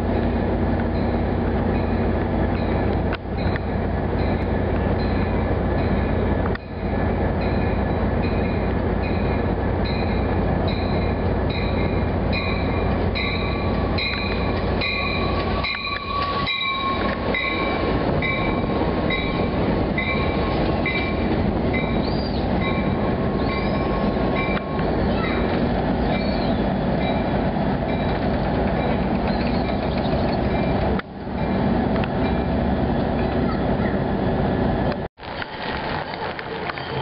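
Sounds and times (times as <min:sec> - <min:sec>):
train rumbling past: 0:00.0 - 0:37.0
high wheel squeal: 0:13.3 - 0:19.4, 0:21.8 - 0:27.3, 0:28.8 - 0:30.8.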